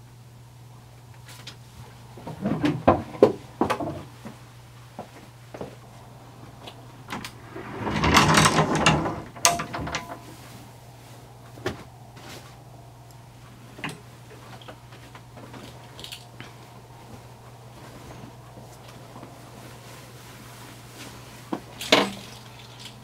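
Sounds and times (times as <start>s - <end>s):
low hum: 5.4s - 21.2s
small clicks and knocks: 6.6s - 10.5s
folding door rattling on track: 6.8s - 10.5s.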